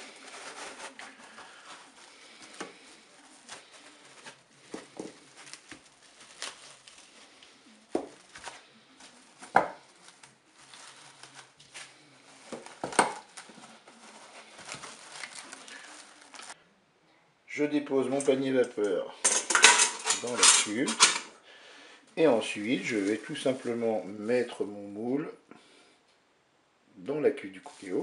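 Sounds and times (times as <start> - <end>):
cling film crinkling and rustling: 0.0 - 16.6.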